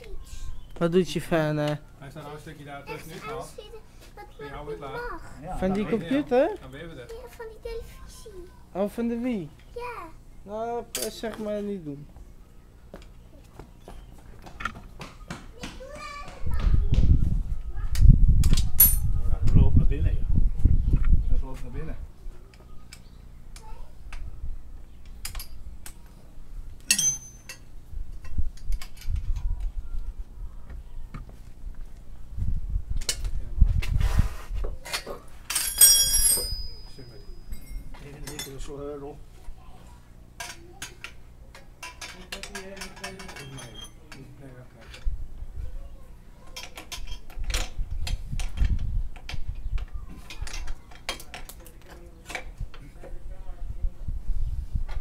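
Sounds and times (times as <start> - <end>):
ringing metallic clink: 18.8 - 19.0, 26.9 - 27.7, 35.5 - 38.6
tools ticking on metal parts: 26.9 - 27.7.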